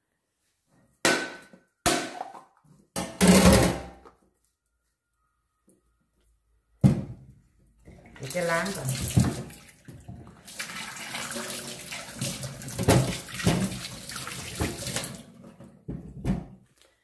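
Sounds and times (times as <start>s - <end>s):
tap water splashing in sink: 7.9s - 15.3s.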